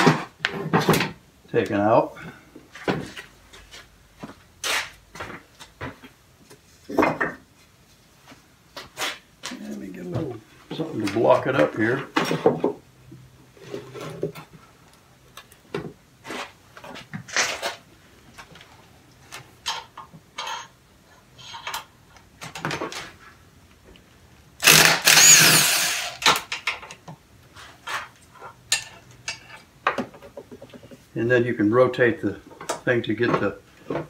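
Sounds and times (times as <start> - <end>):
knocks and clatters of parts: 0.0 - 1.2, 21.4 - 23.2, 24.6 - 27.2, 27.8 - 31.0
cordless drill motor whine: 24.6 - 26.2.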